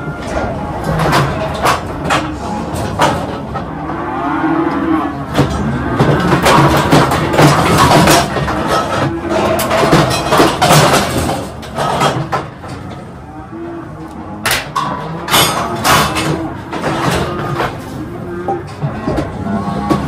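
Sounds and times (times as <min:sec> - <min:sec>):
metal gates clanking and rattling: 0:00.0 - 0:04.0, 0:04.6 - 0:13.2, 0:14.0 - 0:20.0.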